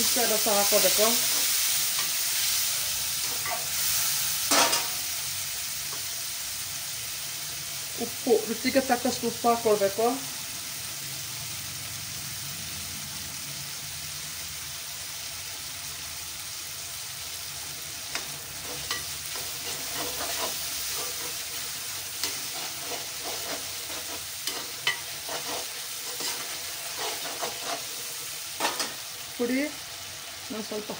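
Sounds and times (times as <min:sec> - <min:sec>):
steel spoon scraping a pan: 0:00.0 - 0:05.0, 0:18.1 - 0:29.2
food sizzling in a pan: 0:00.0 - 0:30.9.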